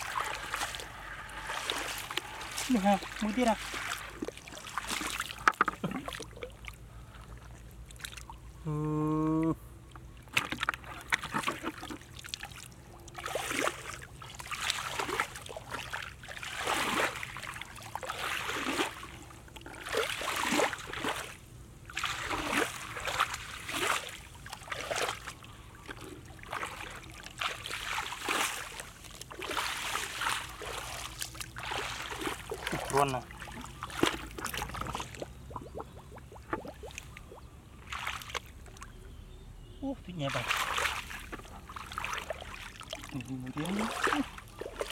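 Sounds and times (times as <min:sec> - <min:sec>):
bare feet splashing through water: 0:00.0 - 0:08.5, 0:09.9 - 0:39.0, 0:40.1 - 0:44.9
water sloshing: 0:00.0 - 0:08.6, 0:09.8 - 0:39.2, 0:39.8 - 0:44.9.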